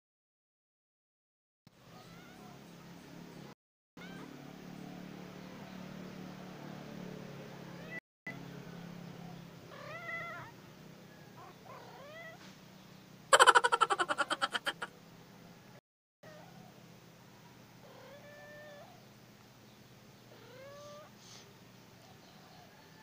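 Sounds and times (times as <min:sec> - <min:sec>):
kittens meowing: 0:13.4 - 0:14.9.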